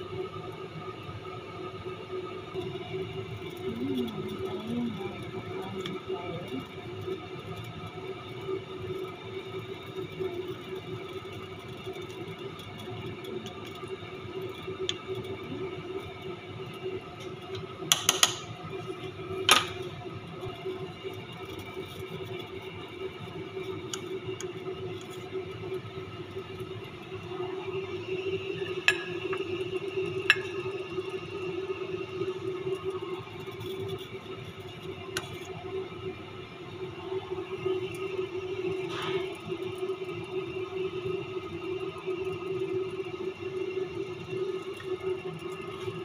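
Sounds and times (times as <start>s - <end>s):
spoon clinking on metal pot: 28.8s - 29.4s, 30.3s - 30.6s.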